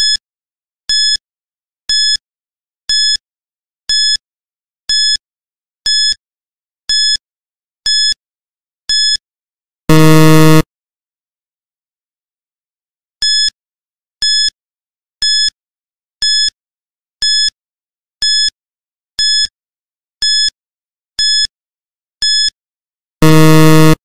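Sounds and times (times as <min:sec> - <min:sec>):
long low buzzer: 0:09.9 - 0:10.6, 0:23.2 - 0:24.0
short high beeps: 0:09.9 - 0:10.6, 0:23.2 - 0:24.0.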